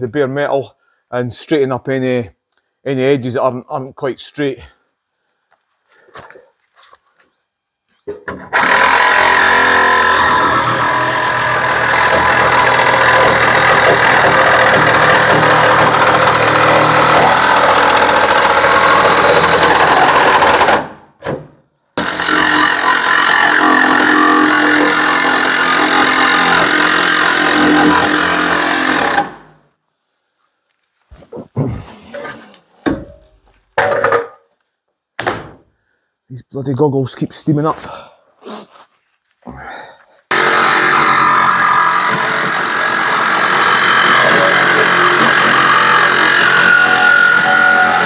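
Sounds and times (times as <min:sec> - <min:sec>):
reciprocating saw cutting sheet metal: 0:08.5 - 0:20.9, 0:22.0 - 0:29.3, 0:40.3 - 0:48.0.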